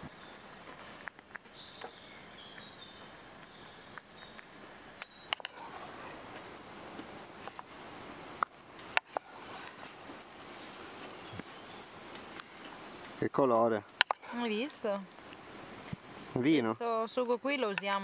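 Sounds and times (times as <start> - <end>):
faint high chirps: 0.0 - 6.4
faint steady hiss: 0.0 - 18.0
simmering pops and clicks: 3.4 - 7.7, 8.4 - 10.3, 12.1 - 16.3.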